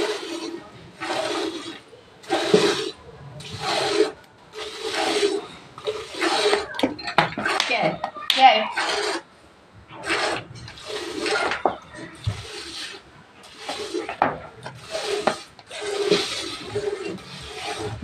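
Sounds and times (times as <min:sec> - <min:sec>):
milk squirting into steel bucket: 0:00.0 - 0:07.6.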